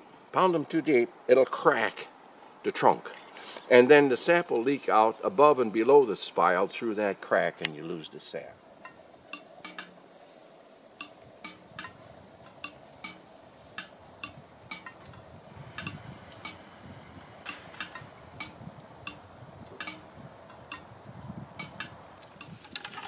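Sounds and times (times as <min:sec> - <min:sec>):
sap dripping into metal pails: 0:08.8 - 0:10.2, 0:11.0 - 0:23.0.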